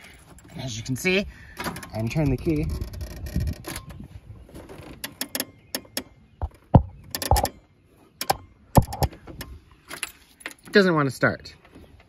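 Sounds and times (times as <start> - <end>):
starter clicking: 4.8 - 7.6.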